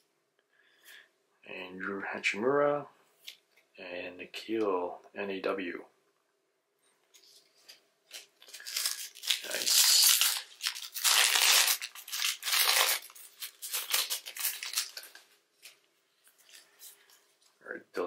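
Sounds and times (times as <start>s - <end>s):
foil wrapper ripping and crinkling: 8.1s - 15.8s.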